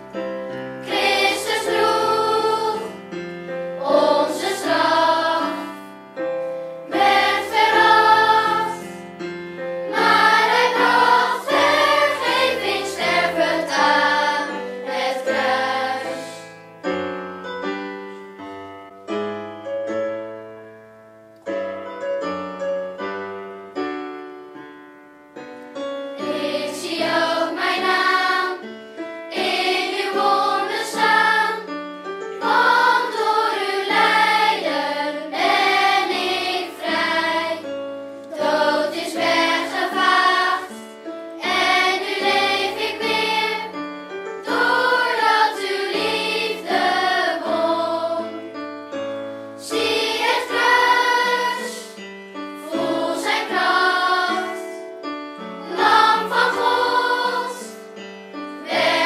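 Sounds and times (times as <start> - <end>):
piano accompaniment: 0.0 - 59.0
children's choir singing: 0.8 - 6.0, 6.9 - 9.0, 9.9 - 16.6, 26.2 - 31.8, 32.4 - 48.6, 49.6 - 58.0, 58.6 - 59.0.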